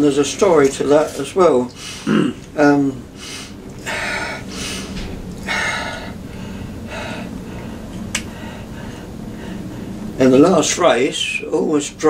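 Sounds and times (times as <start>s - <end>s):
faint low hum: 0.0s - 12.0s
man breathing: 1.8s - 2.2s, 3.1s - 10.2s.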